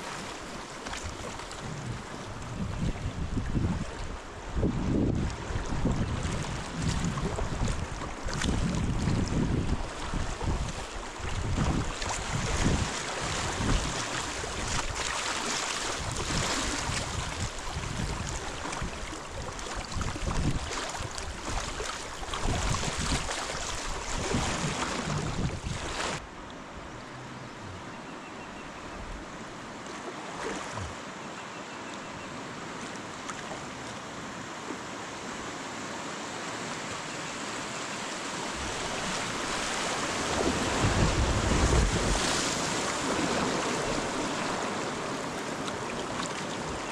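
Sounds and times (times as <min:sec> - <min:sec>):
river water rushing: 0:00.0 - 0:02.6, 0:09.8 - 0:28.2, 0:32.4 - 0:46.9
wind buffeting microphone: 0:01.0 - 0:15.1, 0:16.0 - 0:26.2, 0:38.6 - 0:44.6.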